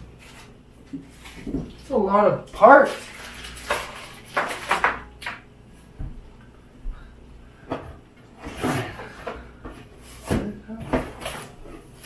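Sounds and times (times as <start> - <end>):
plastic bags rustling and crinkling: 2.6 - 5.1.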